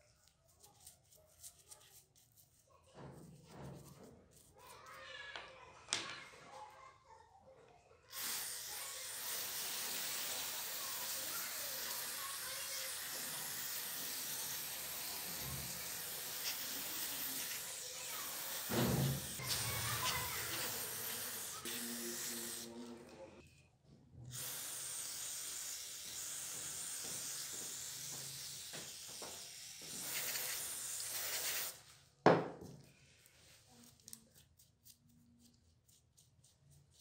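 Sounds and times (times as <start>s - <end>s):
aerosol spray hissing: 8.2s - 22.7s, 24.3s - 31.8s.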